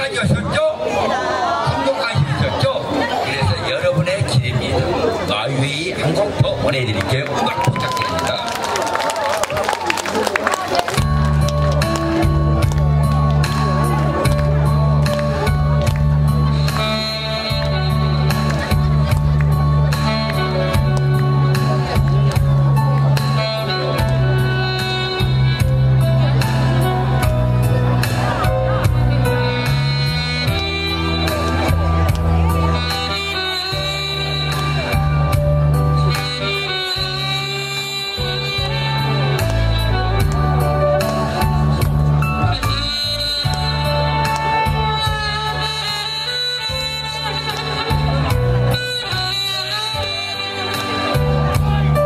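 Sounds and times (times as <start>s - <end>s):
bass line: 10.8s - 52.0s
saxophone playing a melody: 10.9s - 52.0s.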